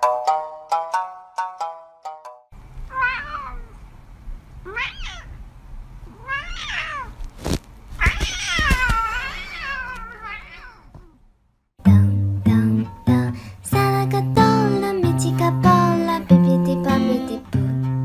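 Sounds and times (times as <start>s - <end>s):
cat meowing: 2.9s - 3.8s, 4.6s - 5.4s, 6.1s - 7.2s, 8.0s - 11.2s.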